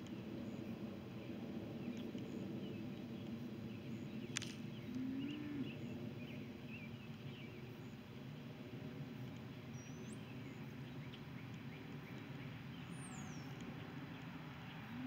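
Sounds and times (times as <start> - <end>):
small birds chirping: 9.2 - 15.0.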